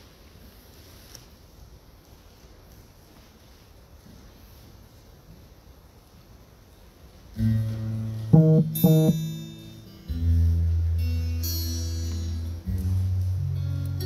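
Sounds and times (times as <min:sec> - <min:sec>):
guitar chords strummed: 0:07.7 - 0:10.3
keyboard: 0:08.4 - 0:09.5.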